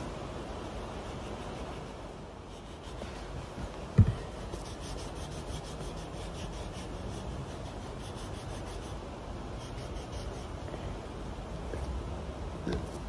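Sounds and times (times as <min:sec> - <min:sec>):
pen scribbling on paper: 0:04.5 - 0:09.0, 0:09.6 - 0:10.6.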